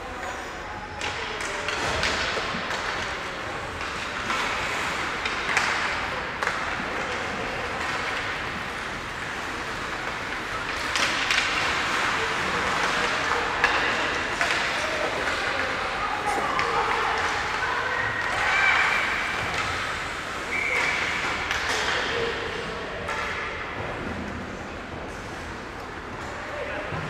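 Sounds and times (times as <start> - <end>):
sticks clacking on puck: 1.0 - 17.6, 18.2 - 22.4
skates scraping ice: 1.7 - 22.6.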